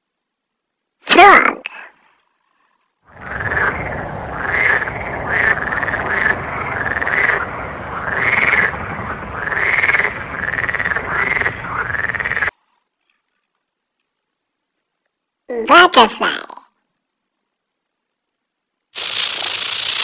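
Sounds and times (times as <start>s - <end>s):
steady noisy background: 3.1s - 12.5s
frog croaking: 3.1s - 12.6s.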